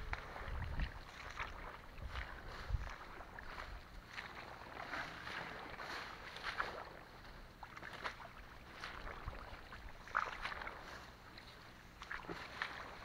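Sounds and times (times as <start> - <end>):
undergrowth rustling and crackling: 2.1 - 7.4, 10.4 - 13.0.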